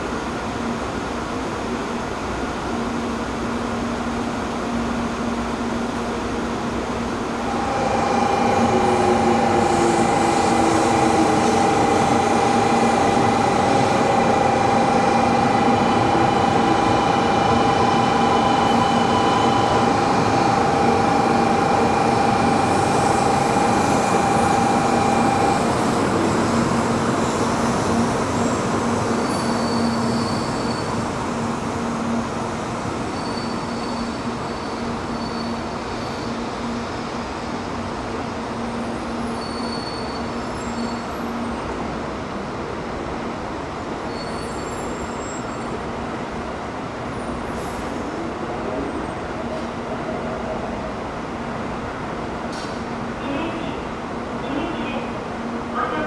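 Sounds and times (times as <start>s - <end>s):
train running slowly: 0.0s - 56.0s
steady whine: 7.4s - 26.1s.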